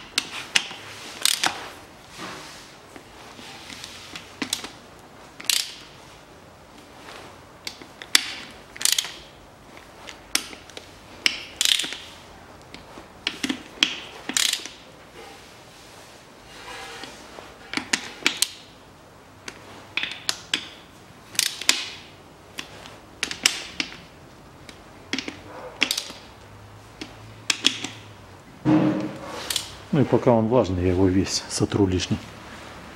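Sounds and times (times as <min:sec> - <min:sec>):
ratchet clicking: 0:05.4 - 0:05.9, 0:07.7 - 0:09.2, 0:11.2 - 0:12.1, 0:13.3 - 0:14.8.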